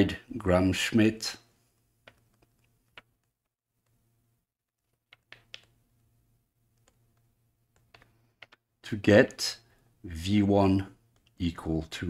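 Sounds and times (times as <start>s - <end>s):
stylus tapping on tablet: 2.0s - 3.3s, 4.8s - 5.8s, 6.7s - 8.7s.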